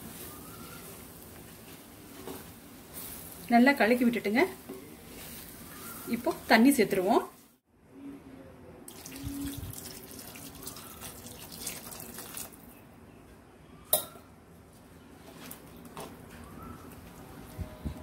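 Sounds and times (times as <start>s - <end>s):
water pouring and splashing: 8.9s - 12.7s.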